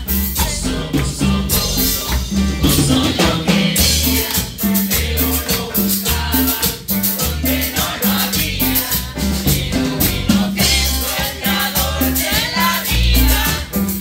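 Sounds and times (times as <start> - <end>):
low bass pulse: 0.0 - 4.3, 8.4 - 11.2
congas: 0.0 - 14.0
drum kit: 0.0 - 14.0
people singing: 0.0 - 14.0.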